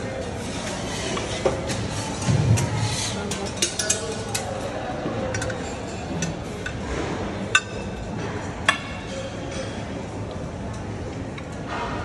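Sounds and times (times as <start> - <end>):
metal tongs clinking on trays: 3.2 - 6.8.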